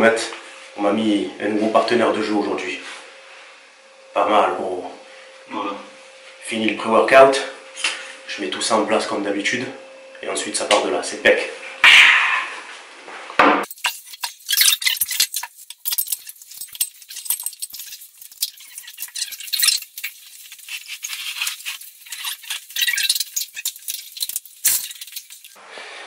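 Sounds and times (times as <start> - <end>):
metal clips clinking: 13.7 - 25.6.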